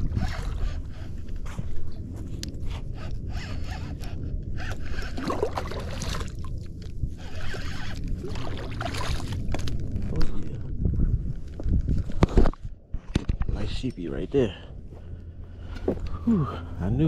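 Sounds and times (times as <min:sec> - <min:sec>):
fishing reel gears whirring: 0:00.0 - 0:01.4, 0:02.8 - 0:09.8.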